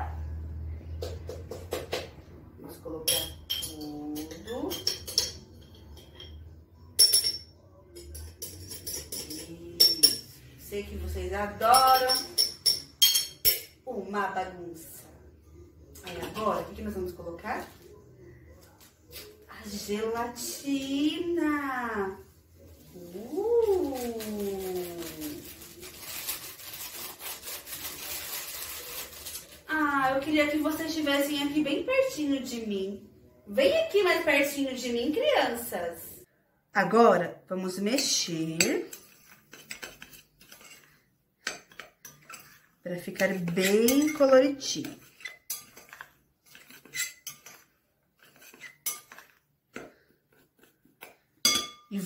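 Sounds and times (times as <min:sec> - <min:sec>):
spoon clinking against glass: 0:03.1 - 0:10.4, 0:11.7 - 0:13.8, 0:51.4 - 0:51.9
spoon stirring powder: 0:03.1 - 0:10.7, 0:11.4 - 0:13.6, 0:22.0 - 0:29.6, 0:37.7 - 0:52.0
packet tearing and rustling: 0:23.6 - 0:29.7.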